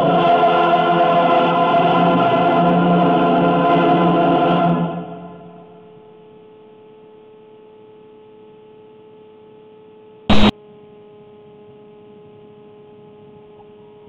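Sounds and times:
faint steady hum: 4.7s - 14.0s.

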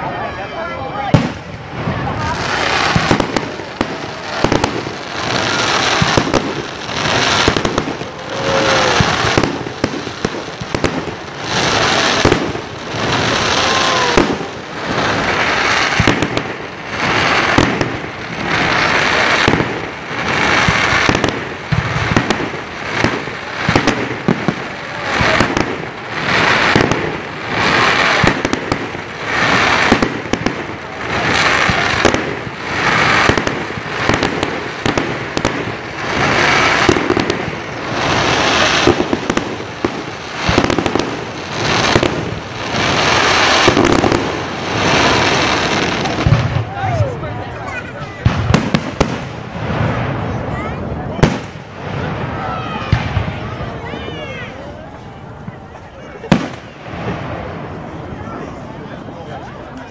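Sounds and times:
fireworks whistles: 0.1s - 47.1s
fireworks rushing hiss: 0.1s - 59.9s
fireworks crackling pops: 1.0s - 58.6s.

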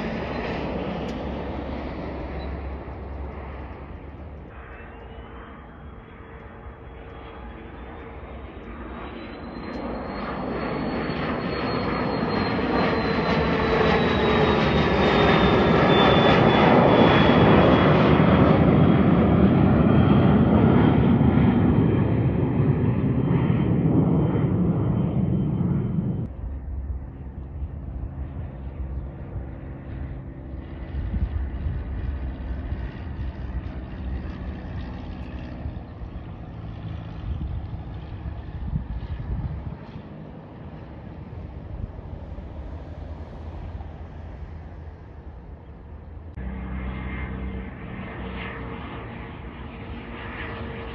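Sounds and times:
jet roar with high whine: 0.0s - 50.9s
quiet outdoor background: 26.2s - 50.8s.

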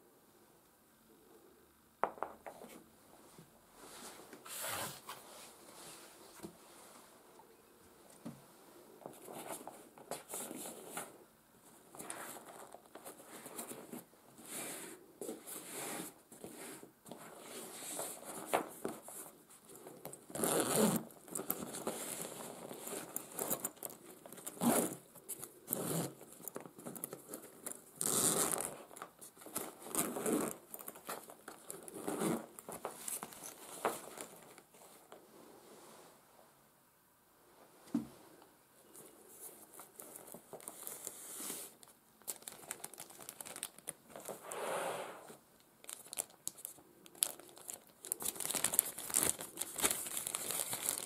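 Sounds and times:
fabric rubbing and scraping: 3.8s - 7.1s, 20.4s - 21.0s, 24.5s - 25.0s
zipper rasping open: 20.3s - 23.8s, 24.5s - 25.0s, 25.7s - 26.2s, 28.0s - 28.8s, 29.6s - 30.7s, 31.7s - 32.6s.

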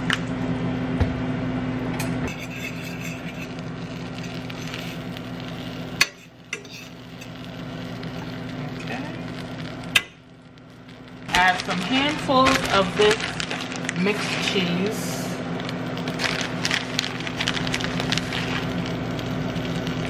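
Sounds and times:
spoon scraping a pan: 2.3s - 5.2s, 5.9s - 7.4s
butter and cheese sizzling in skillet: 2.3s - 20.0s.

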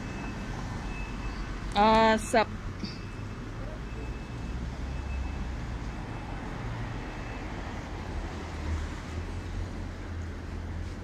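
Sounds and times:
cars passing on street: 0.0s - 11.0s.

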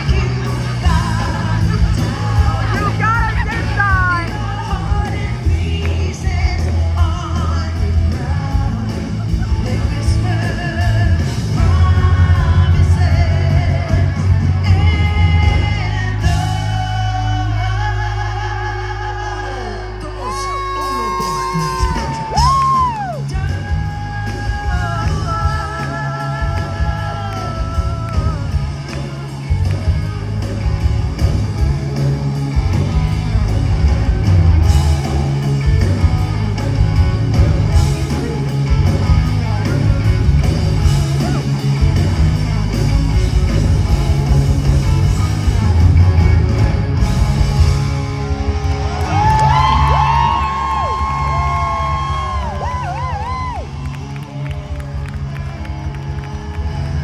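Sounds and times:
person singing: 0.0s - 29.8s
live rock band: 0.0s - 57.0s.

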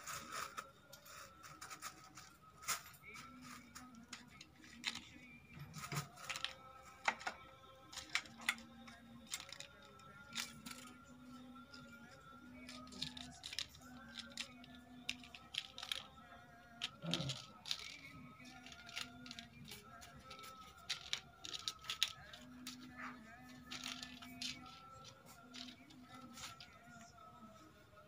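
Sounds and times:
faint background music: 0.0s - 28.0s
plastic bag crinkling: 12.6s - 16.1s, 16.8s - 22.8s.

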